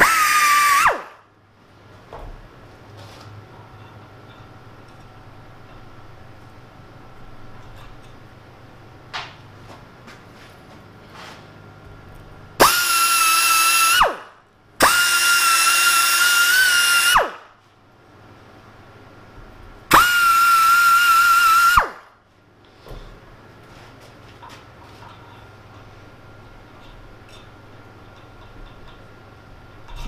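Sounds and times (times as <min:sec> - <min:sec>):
pneumatic die grinder whine: 0:00.0 - 0:01.2, 0:12.6 - 0:17.5, 0:19.9 - 0:22.1.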